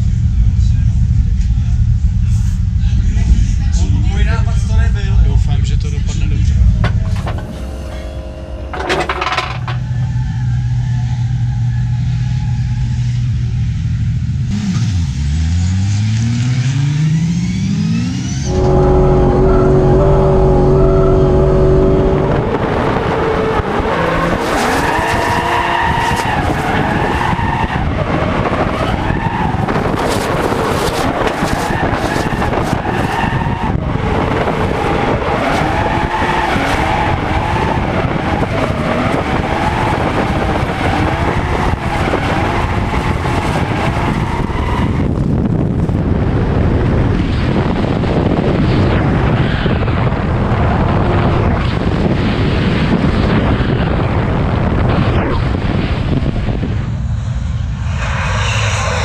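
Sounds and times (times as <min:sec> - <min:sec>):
car engine revving: 0:01.7 - 0:59.0
tyres squealing: 0:19.4 - 0:27.8.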